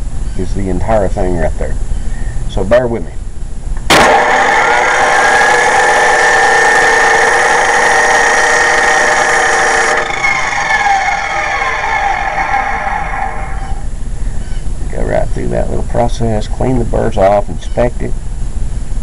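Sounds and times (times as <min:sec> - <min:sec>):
grinder spinning down: 0:03.9 - 0:14.0
grinder whining: 0:03.9 - 0:14.0.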